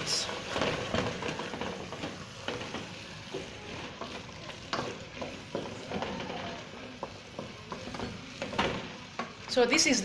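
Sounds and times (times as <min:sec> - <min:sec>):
low sizzle: 0:00.0 - 0:10.0.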